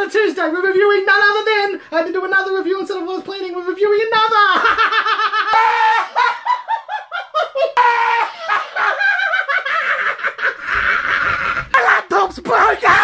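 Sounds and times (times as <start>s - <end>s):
man's falsetto laughter: 4.6s - 11.8s
man's wavering high cry: 5.5s - 6.4s, 7.8s - 9.1s.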